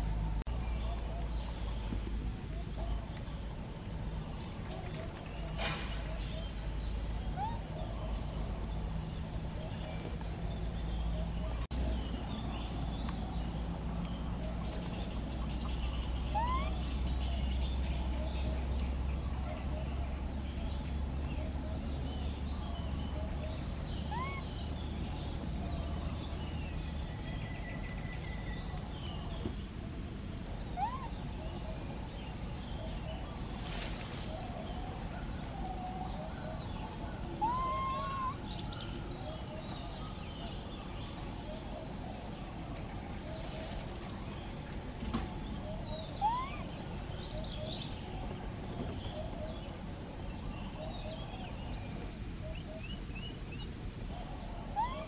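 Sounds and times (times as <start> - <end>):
upward sweeping calls: 37.2 - 40.3, 45.6 - 48.0.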